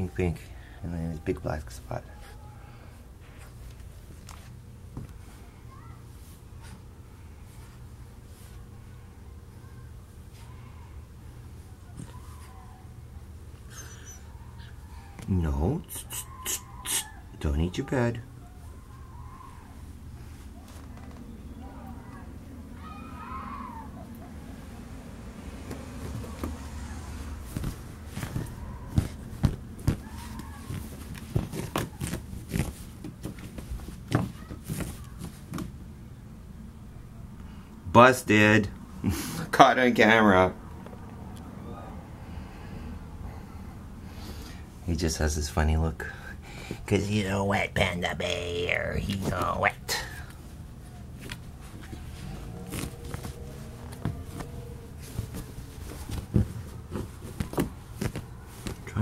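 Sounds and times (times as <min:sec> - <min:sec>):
puppy scuffing fabric bed: 0:25.6 - 0:35.6, 0:51.2 - 0:59.0.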